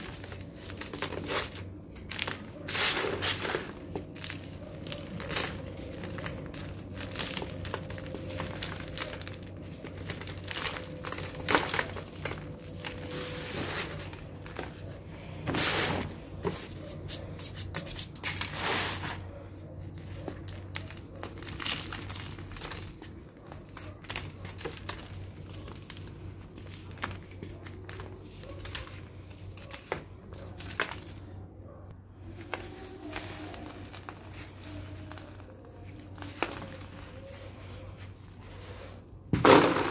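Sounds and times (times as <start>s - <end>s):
dried cement lumps crunching: 0.0s - 31.3s, 32.2s - 39.9s
grit falling onto a sheet: 39.3s - 39.9s.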